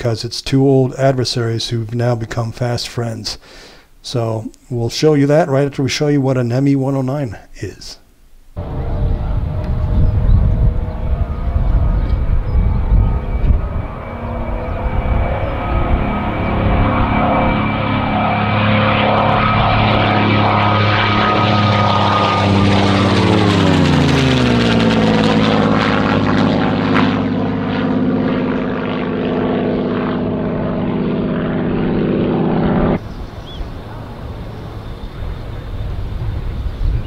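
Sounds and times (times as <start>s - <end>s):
quiet outdoor noise: 0.0s - 12.6s, 33.0s - 37.0s
propeller plane flying past: 8.6s - 37.0s.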